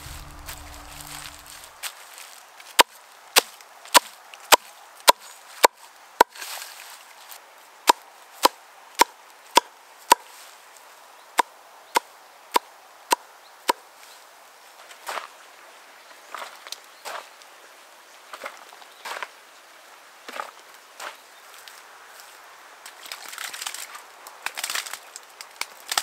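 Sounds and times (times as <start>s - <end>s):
axe chopping wood: 7.9s - 10.3s.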